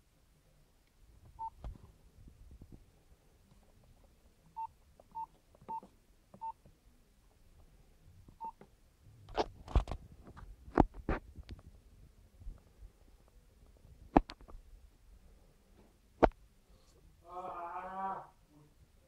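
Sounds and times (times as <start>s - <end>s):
keypad beeps: 4.6s - 6.6s
sharp clicks and knocks: 14.1s - 14.6s.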